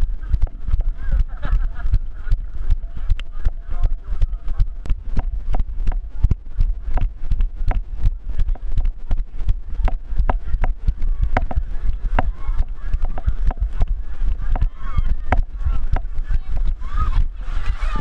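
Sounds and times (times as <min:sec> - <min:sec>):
low pounding heartbeat: 0:00.0 - 0:18.0.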